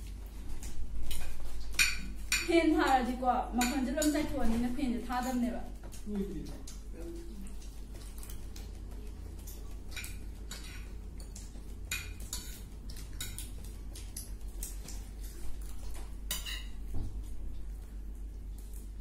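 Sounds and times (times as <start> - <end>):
utensils clinking on dish: 9.4 - 13.5, 16.3 - 16.8.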